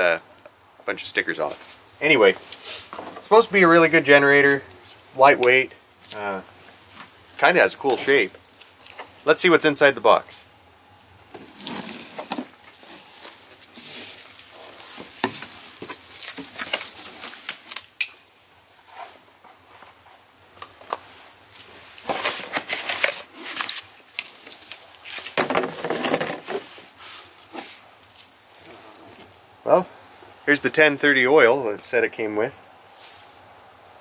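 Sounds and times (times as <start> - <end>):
cardboard scraping and rustling: 21.7 - 27.8.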